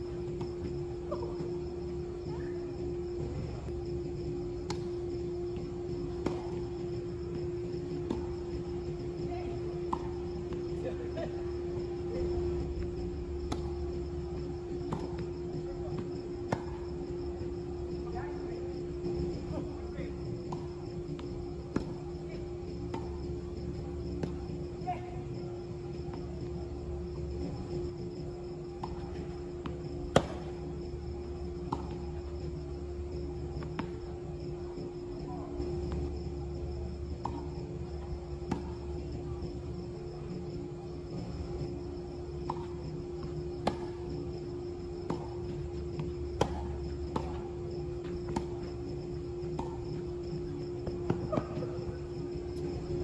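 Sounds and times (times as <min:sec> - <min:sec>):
insects chirping: 0:00.0 - 0:53.0
low hum: 0:00.0 - 0:53.0
ball bouncing on court: 0:05.5 - 0:06.8, 0:12.8 - 0:16.8, 0:28.8 - 0:30.7, 0:42.5 - 0:44.2, 0:45.0 - 0:48.7, 0:49.5 - 0:49.9
racket hitting tennis ball: 0:30.0 - 0:30.6, 0:45.0 - 0:47.4.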